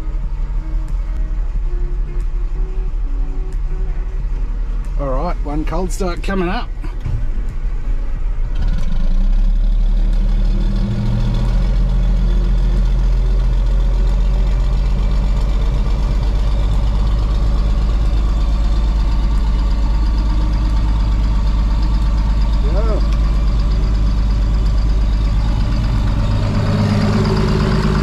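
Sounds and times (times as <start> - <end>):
diesel engine starting and idling: 0.0 - 28.0.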